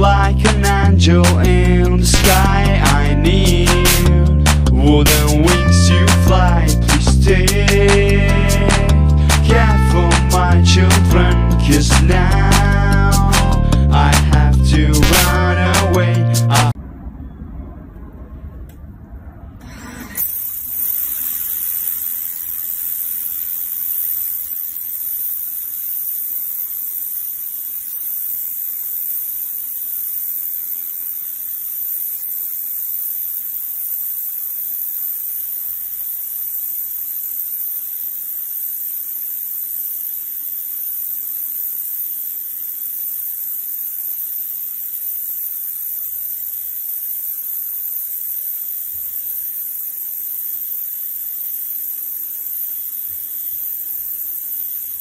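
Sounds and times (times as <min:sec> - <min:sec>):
pressure washer motor humming: 0:00.0 - 0:16.8, 0:19.6 - 0:55.0
water jet hissing on concrete: 0:20.2 - 0:55.0.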